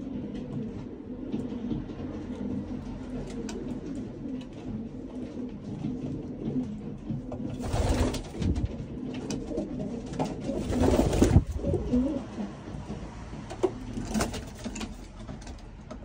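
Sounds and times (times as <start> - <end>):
pigeons cooing: 0.0 - 15.2
rustling bursts: 7.6 - 9.0, 10.3 - 12.2.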